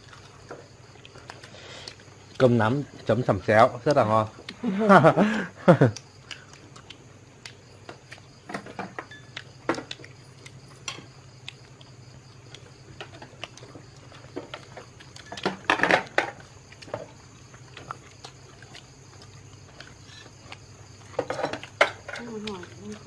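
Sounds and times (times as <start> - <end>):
dishes clattering: 15.3 - 17.1, 21.2 - 22.2.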